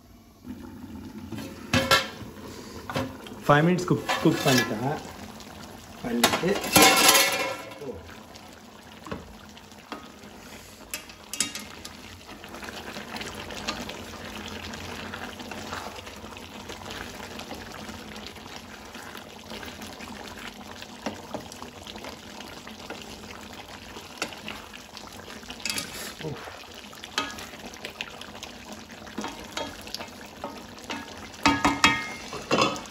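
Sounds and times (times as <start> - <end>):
curry bubbling in a pan: 0.0 - 32.9
wooden spatula knocking on pan: 30.9 - 32.8.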